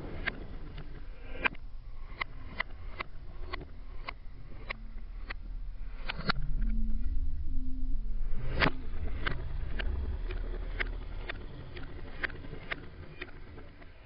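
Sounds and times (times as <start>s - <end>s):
faint low tones: 0.0s - 14.0s
steady low hum: 0.0s - 14.0s
sharp clicks: 0.2s - 6.8s.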